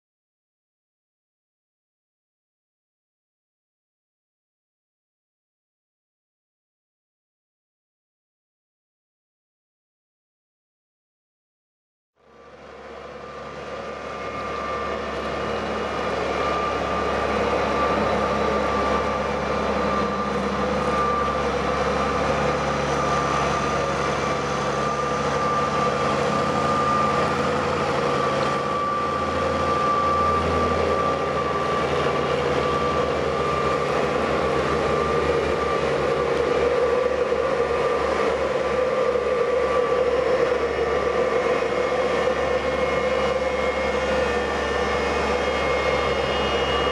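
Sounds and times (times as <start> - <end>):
motor hum with high whine: 12.2 - 46.9.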